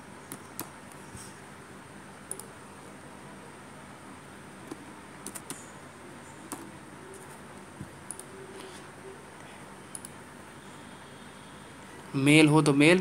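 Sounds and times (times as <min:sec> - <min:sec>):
steady background hiss: 0:00.0 - 0:13.0
computer keyboard keystrokes: 0:02.3 - 0:02.5, 0:04.6 - 0:05.6, 0:06.5 - 0:06.7, 0:08.0 - 0:08.3
mouse clicks: 0:02.3 - 0:02.5, 0:08.0 - 0:08.4, 0:09.9 - 0:10.2.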